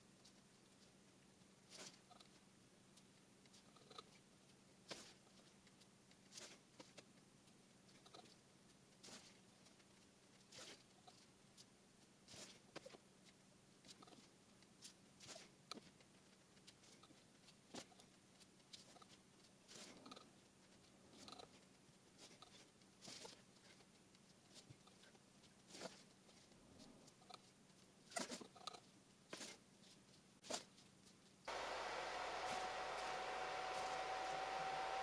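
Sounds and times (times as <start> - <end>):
soft rustles and scrapes: 0.1 - 31.5
faint low hum: 31.4 - 35.0.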